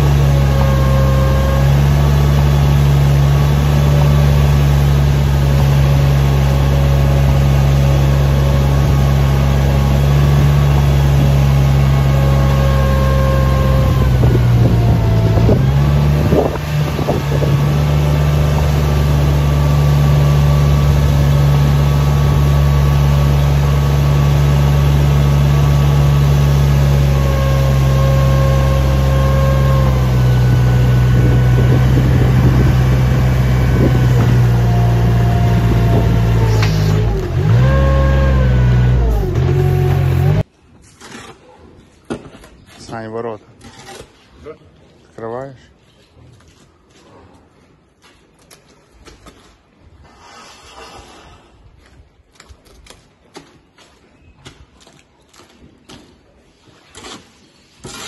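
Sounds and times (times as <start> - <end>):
loader engine running: 0.0 - 40.5
scraper pushing slurry on concrete: 49.2 - 51.6, 55.4 - 58.0.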